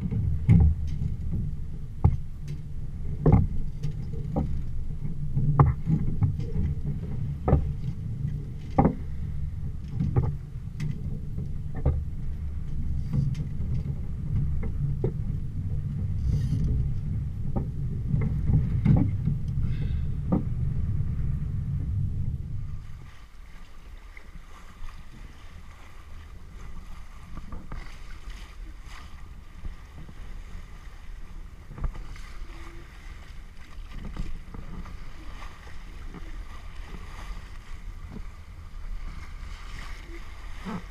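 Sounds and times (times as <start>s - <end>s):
water rushing along hull: 0.0s - 40.9s
wind buffeting microphone: 0.0s - 40.9s
small wave splashes: 22.7s - 40.9s.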